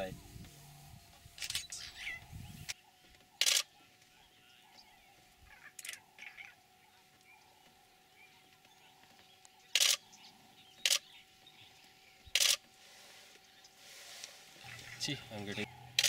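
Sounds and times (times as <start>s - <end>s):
camera shutters firing: 1.4s - 1.7s, 3.4s - 3.7s, 9.7s - 10.0s, 10.8s - 11.0s, 12.3s - 12.6s.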